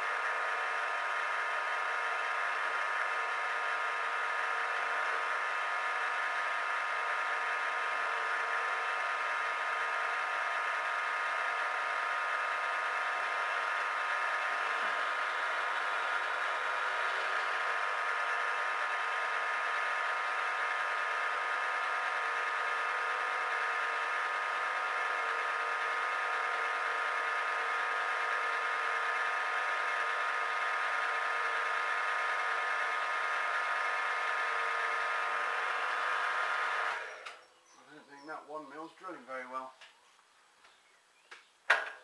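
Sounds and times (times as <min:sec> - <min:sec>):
milling machine drilling metal: 0:00.1 - 0:37.4.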